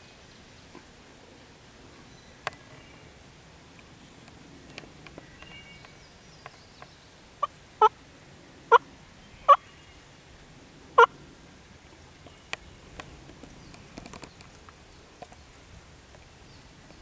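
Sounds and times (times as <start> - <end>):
faint ticks: 2.4 - 3.1, 3.7 - 7.0, 11.8 - 17.0
turkeys gobbling: 8.7 - 8.9.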